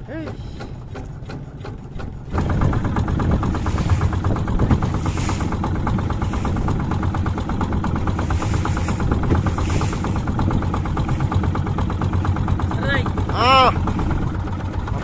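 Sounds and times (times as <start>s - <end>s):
small boat engine running: 0.0s - 15.0s.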